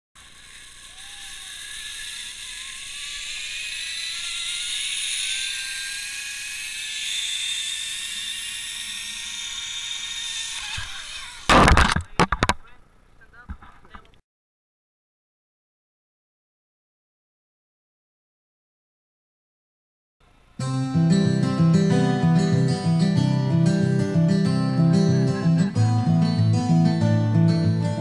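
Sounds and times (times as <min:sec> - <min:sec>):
zipline trolley whirring on cable: 0:00.2 - 0:11.5.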